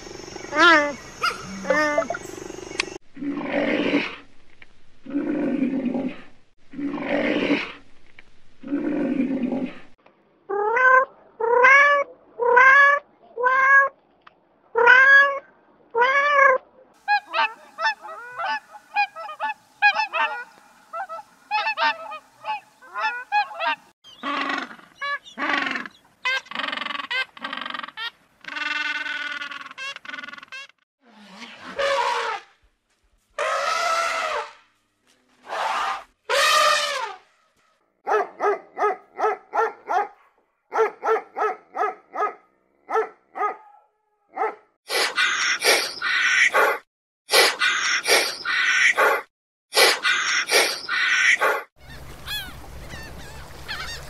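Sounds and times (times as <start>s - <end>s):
animal calls: 0.5s - 2.8s, 16.0s - 30.7s, 44.9s - 54.0s.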